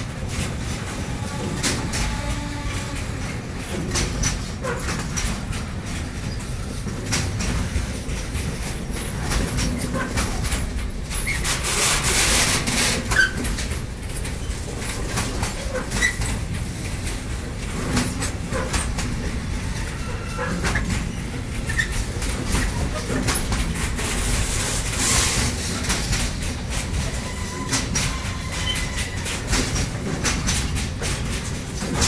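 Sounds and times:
freight wagons rumbling on rails: 0:00.0 - 0:32.0
wheels clicking and clacking: 0:00.0 - 0:32.0
wheel squeaks: 0:13.0 - 0:13.5, 0:27.0 - 0:29.5
hiss: 0:24.0 - 0:26.1.

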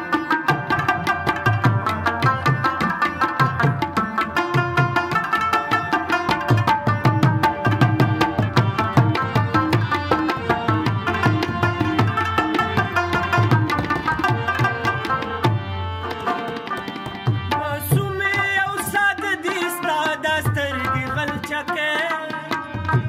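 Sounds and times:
harmonium chords: 0:00.0 - 0:23.0
tabla rhythm: 0:00.0 - 0:23.0
man singing: 0:17.5 - 0:23.0.

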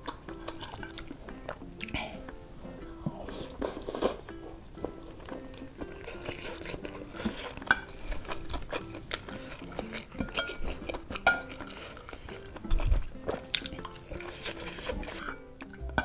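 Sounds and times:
background music: 0:00.0 - 0:16.0
cutlery clinking on ceramic bowl: 0:07.5 - 0:08.0, 0:09.6 - 0:11.8.

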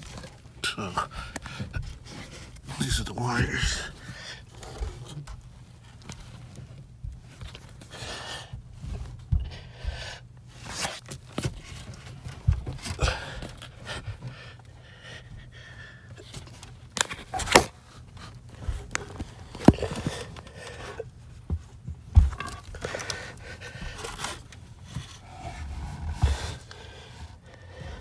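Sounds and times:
clothing and insulation rustling: 0:00.0 - 0:28.0
man panting: 0:00.7 - 0:05.0, 0:12.8 - 0:16.4, 0:22.7 - 0:24.4, 0:26.0 - 0:28.0.

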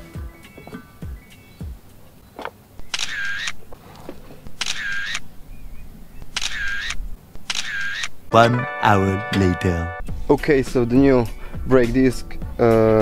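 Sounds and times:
phone camera shutter sound: 0:02.9 - 0:03.6, 0:04.6 - 0:05.3, 0:06.3 - 0:08.2.

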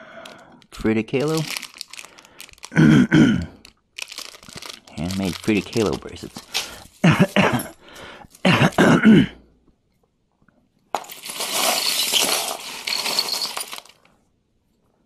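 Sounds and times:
jewelry rustling and rattling: 0:01.2 - 0:02.8, 0:03.6 - 0:08.5, 0:10.9 - 0:14.2
person mumbling: 0:02.7 - 0:03.6.

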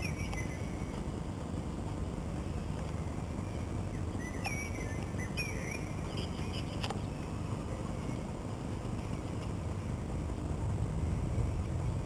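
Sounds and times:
low background rumble: 0:00.0 - 0:12.0
high bird chirps: 0:04.2 - 0:07.2.

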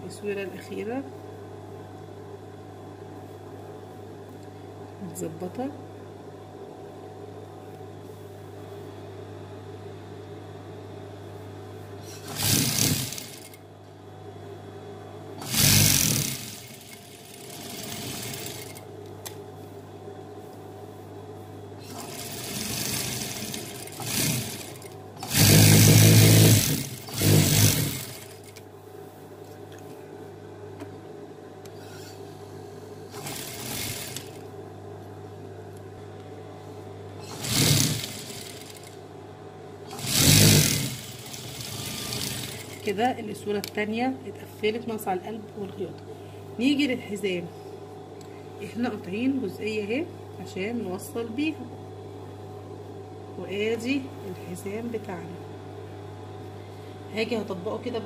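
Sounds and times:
steady low hum: 0:00.0 - 0:58.0
sewing machine stitching: 0:12.1 - 0:13.6, 0:15.4 - 0:18.8, 0:21.8 - 0:28.6, 0:33.1 - 0:34.4, 0:37.2 - 0:39.0, 0:39.9 - 0:42.9.

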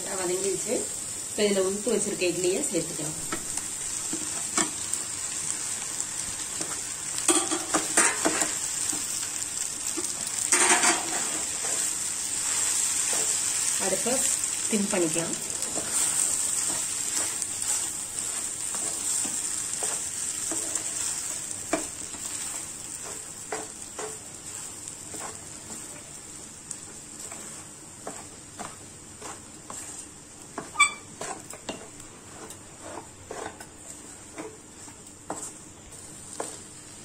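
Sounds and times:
food sizzling in frying pan: 0:00.0 - 0:37.0
wooden spatula knocking and scraping pan: 0:06.6 - 0:09.1, 0:10.0 - 0:11.9, 0:15.0 - 0:26.1, 0:26.9 - 0:36.7.

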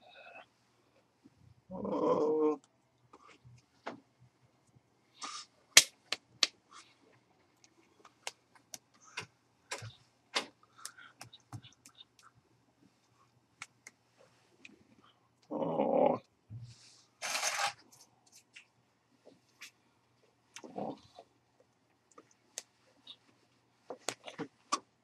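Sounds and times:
hands clapping and mouth smacking: 0:05.8 - 0:06.6, 0:07.6 - 0:08.9, 0:10.8 - 0:12.4, 0:13.6 - 0:14.0.

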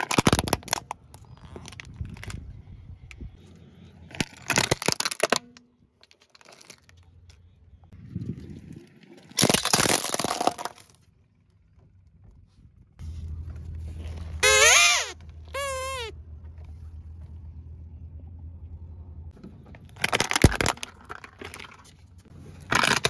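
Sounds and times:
plastic toys crunching under tyre: 0:00.0 - 0:03.3, 0:04.0 - 0:07.5, 0:09.2 - 0:11.1, 0:13.8 - 0:16.2, 0:19.7 - 0:23.0.

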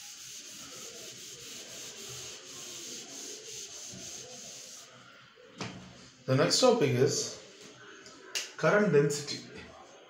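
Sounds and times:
eraser scrubbing whiteboard: 0:00.0 - 0:05.0.

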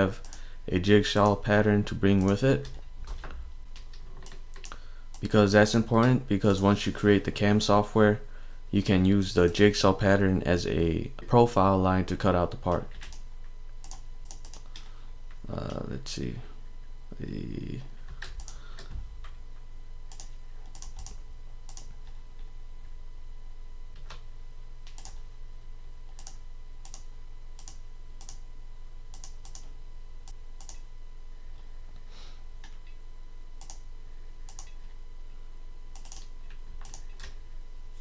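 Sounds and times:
steady low hum: 0:00.0 - 0:38.0
computer mouse clicks: 0:03.7 - 0:05.3, 0:13.8 - 0:14.9, 0:18.2 - 0:19.4, 0:20.1 - 0:21.9, 0:24.8 - 0:25.2, 0:26.1 - 0:28.4, 0:29.1 - 0:29.7, 0:30.3 - 0:30.8, 0:33.6 - 0:33.8, 0:34.5 - 0:34.8, 0:35.9 - 0:37.4.

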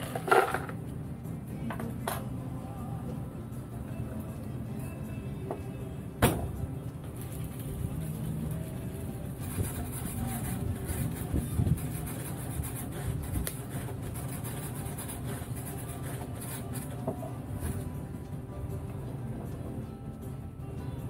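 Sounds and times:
cocktail shaker rattling: 0:00.0 - 0:00.8.

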